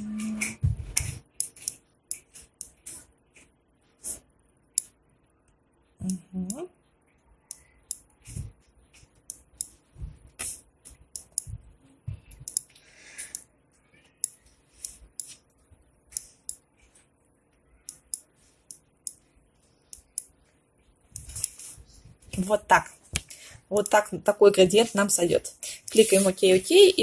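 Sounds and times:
soft low thumps: 0.0s - 1.1s, 9.9s - 10.4s, 11.4s - 12.5s
mouse buttons clicking: 12.4s - 13.5s, 14.2s - 15.4s, 17.8s - 19.2s.

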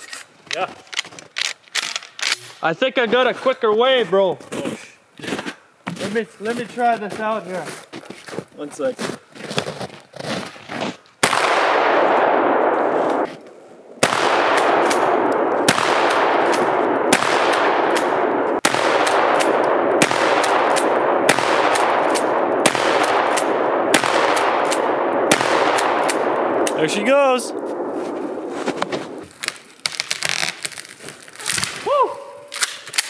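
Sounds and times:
rolling echo of shots: 11.2s - 13.3s, 14.0s - 29.2s
shotgun shots: 11.2s - 13.3s, 14.0s - 29.2s.

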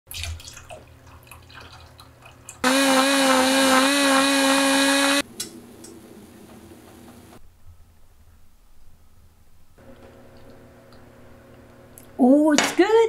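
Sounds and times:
milk pouring and splashing: 0.1s - 2.6s
immersion blender whining: 2.6s - 5.2s.

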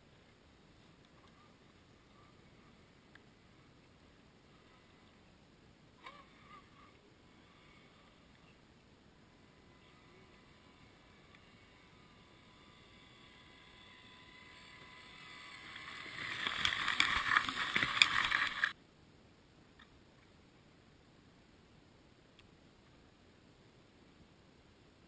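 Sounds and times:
toy car motor whining: 6.0s - 8.5s, 9.3s - 18.8s.

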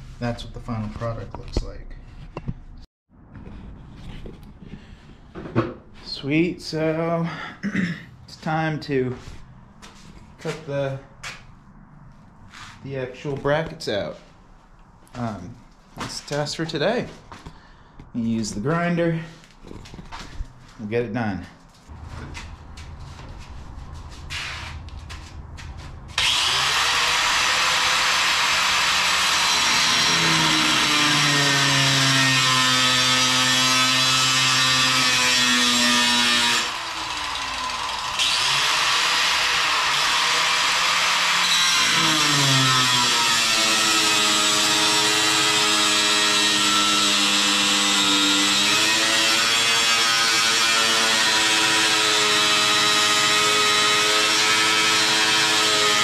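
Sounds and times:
angle grinder cutting steel: 26.2s - 56.0s.

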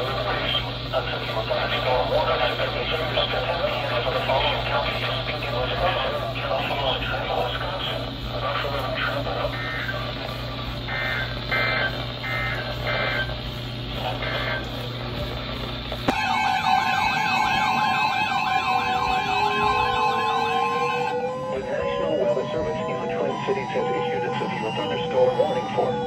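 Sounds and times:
electronic sirens warbling: 0.0s - 15.4s, 16.0s - 26.0s
steady hum: 0.0s - 26.0s
two-tone digital data chirps: 9.5s - 10.0s, 10.9s - 13.4s, 16.1s - 26.0s.

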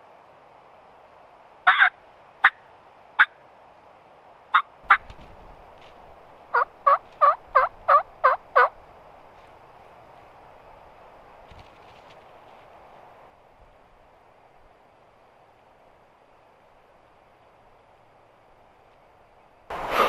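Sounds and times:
turkey clucking and yelping: 1.7s - 2.6s, 6.5s - 8.8s.

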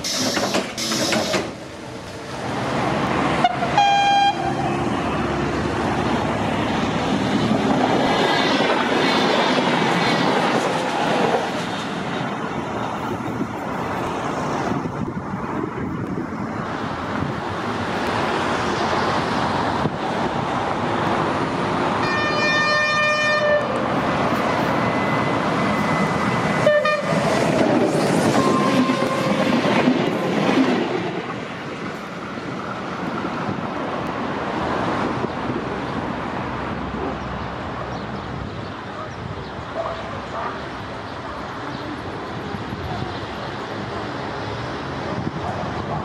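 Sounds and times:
train wheels rumbling on rails: 0.0s - 37.8s
train horn: 3.4s - 4.8s, 22.0s - 23.8s, 26.6s - 27.2s, 28.4s - 29.5s.

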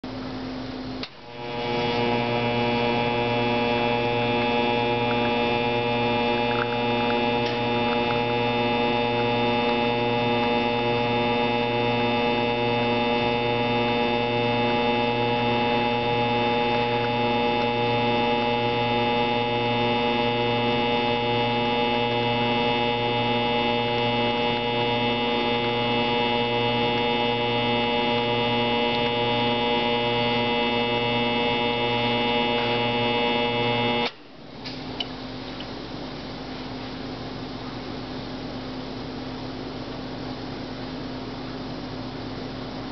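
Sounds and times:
espresso machine pump humming: 0.1s - 34.1s.

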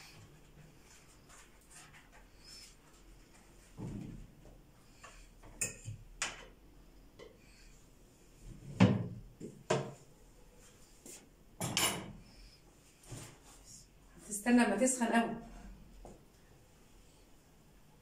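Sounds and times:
dishes and doors clattering: 11.6s - 12.2s.

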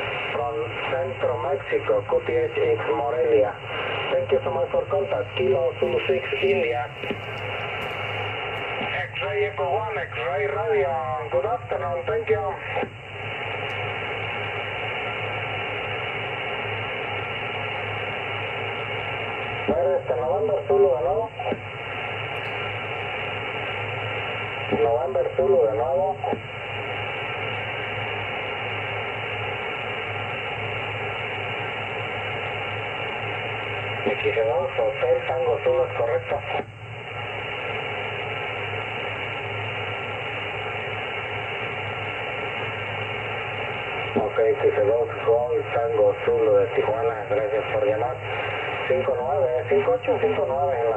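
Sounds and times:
low hum: 0.0s - 9.1s
radio receiver hiss: 0.0s - 50.9s.

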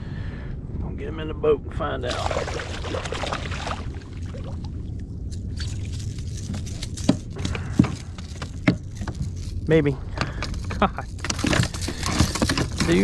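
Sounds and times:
fish splashing in water: 2.2s - 4.6s.

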